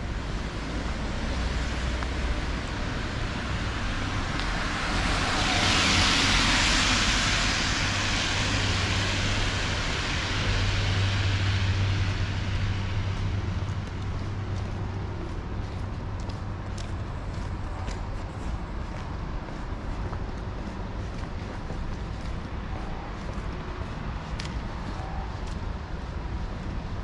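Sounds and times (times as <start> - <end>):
rumble of city traffic: 0.0 - 27.0.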